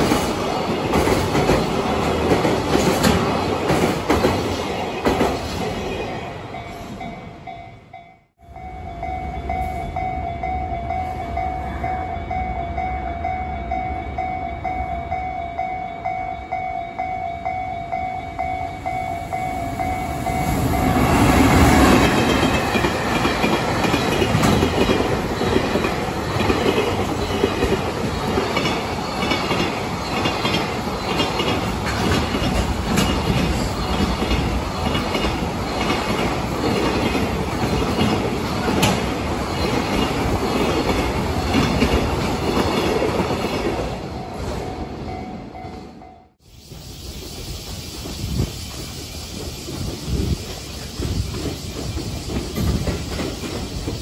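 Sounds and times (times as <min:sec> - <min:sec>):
train wheels clattering: 0:00.0 - 0:05.9, 0:20.1 - 0:44.6, 0:46.6 - 0:54.0
train rumbling and clattering: 0:00.0 - 0:54.0
level crossing warning bells: 0:06.0 - 0:31.9, 0:39.3 - 0:46.4.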